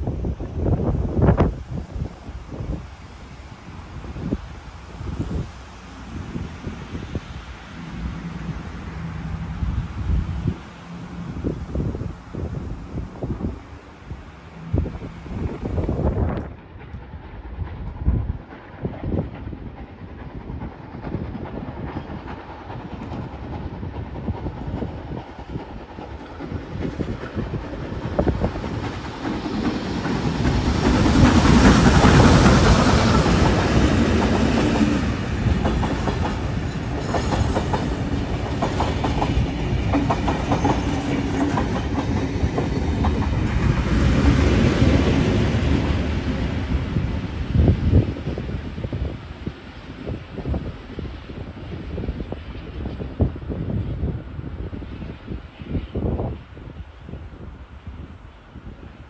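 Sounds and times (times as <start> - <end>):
diesel locomotive passing: 0.0 - 59.0
steam locomotive passing: 0.0 - 59.0
train wheels clicking over rail joints: 15.7 - 47.5.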